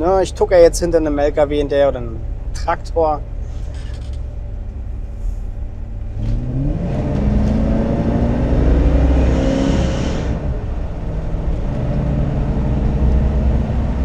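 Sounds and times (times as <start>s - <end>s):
car engine accelerating hard: 5.7s - 14.0s.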